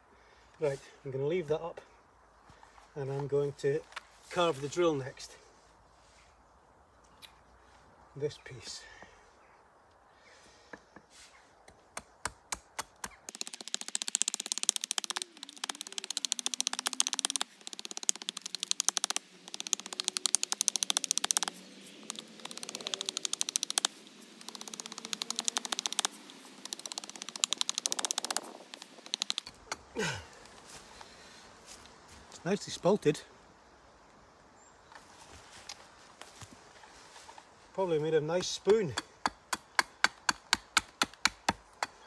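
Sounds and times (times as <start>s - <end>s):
knife chopping wood: 10.7s - 23.9s, 38.4s - 42.0s.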